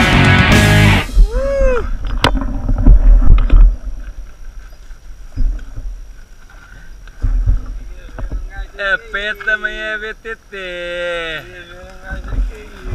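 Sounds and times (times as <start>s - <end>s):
bike rumbling on rough trail: 1.0s - 8.8s.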